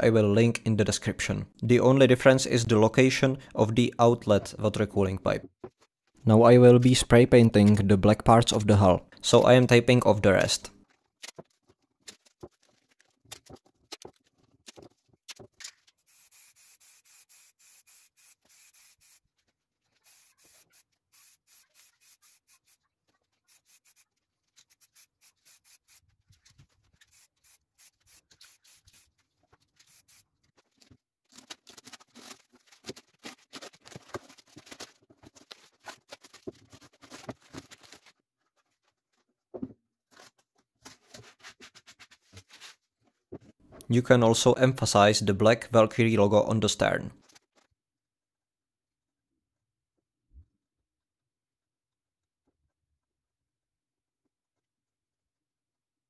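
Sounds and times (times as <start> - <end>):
tape and paper rustling: 10.8 - 16.3, 18.2 - 43.2, 47.2 - 47.7.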